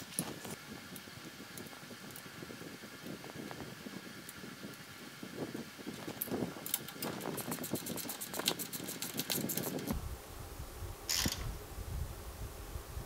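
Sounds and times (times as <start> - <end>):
handling noise: 0.0 - 4.8, 5.8 - 10.0.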